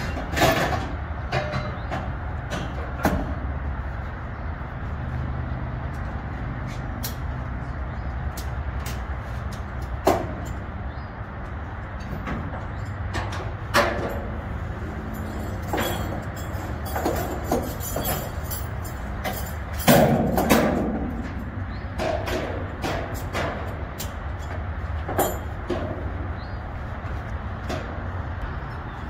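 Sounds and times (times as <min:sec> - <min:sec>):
metal knocks in shipping container: 0:19.8 - 0:21.4.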